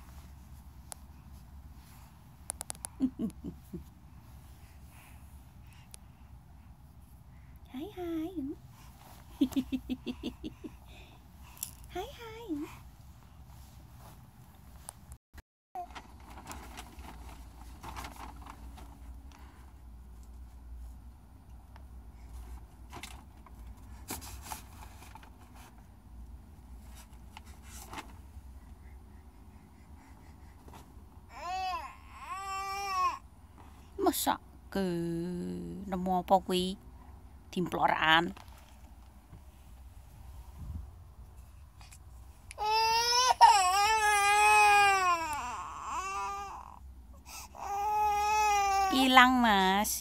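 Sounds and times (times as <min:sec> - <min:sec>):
rustling and scraping: 0:12.9 - 0:15.2, 0:15.8 - 0:21.0, 0:22.2 - 0:26.0, 0:26.6 - 0:28.8, 0:30.5 - 0:31.1, 0:38.3 - 0:42.5
low steady hum: 0:15.8 - 0:50.0
toddler crying: 0:31.3 - 0:33.2, 0:42.6 - 0:46.8, 0:47.6 - 0:49.0.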